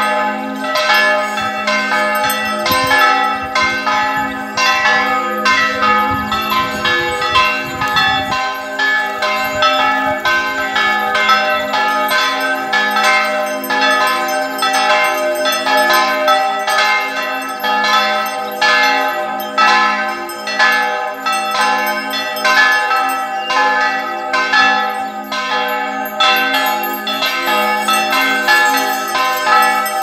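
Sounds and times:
church bells ringing: 0.0 - 30.0.

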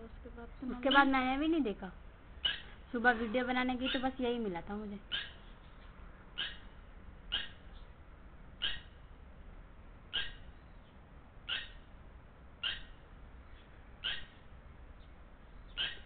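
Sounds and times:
lapwing calling: 0.0 - 1.5, 2.4 - 8.0, 8.6 - 9.1, 10.1 - 12.0, 12.6 - 16.0.

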